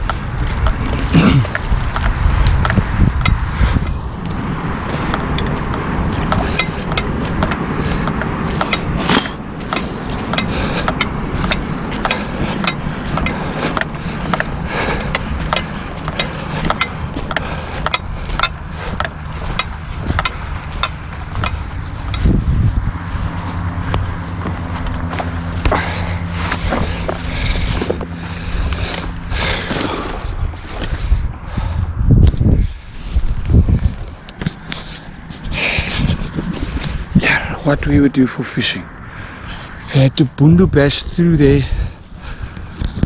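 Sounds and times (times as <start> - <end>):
sharp clicks and knocks: 0.0 - 22.4
footsteps in wet grass and mud: 0.0 - 31.1
low rushing: 0.0 - 43.0.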